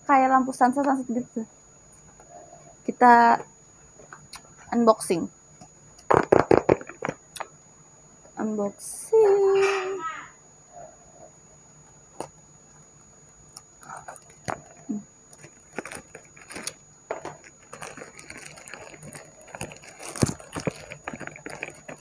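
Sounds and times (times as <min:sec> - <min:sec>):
packaging crinkling and rustling: 0:13.8 - 0:22.0.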